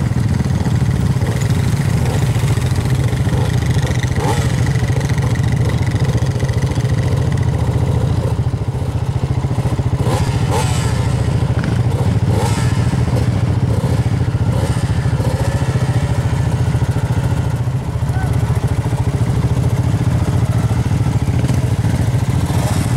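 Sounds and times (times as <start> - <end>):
motor engine revving: 1.0 - 8.9, 9.5 - 22.9.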